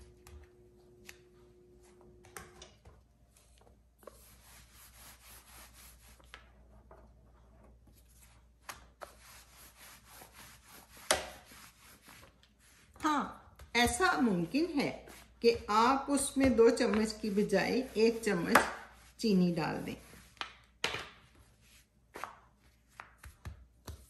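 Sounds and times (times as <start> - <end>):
rolling pin rubbing on dough: 3.9 - 6.8, 7.4 - 20.8.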